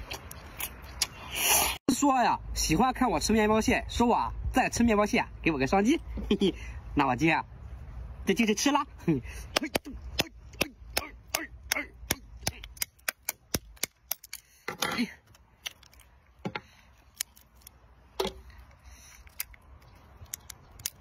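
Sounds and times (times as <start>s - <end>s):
crab shell cracking: 11.7s - 14.5s, 15.2s - 16.4s, 17.0s - 17.8s, 18.6s - 21.0s.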